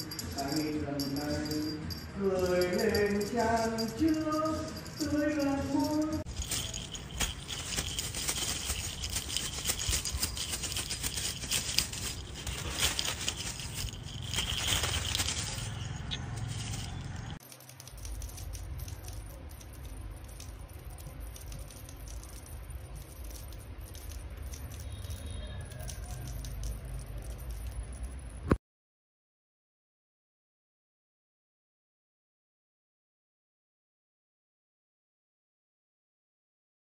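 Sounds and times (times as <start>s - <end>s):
rapid rattling and jingling: 0.0s - 28.6s.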